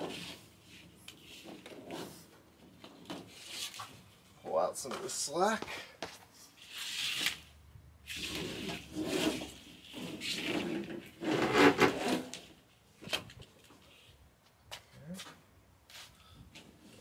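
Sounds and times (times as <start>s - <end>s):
wire rubbing and scraping: 0.0s - 4.4s, 6.6s - 12.7s.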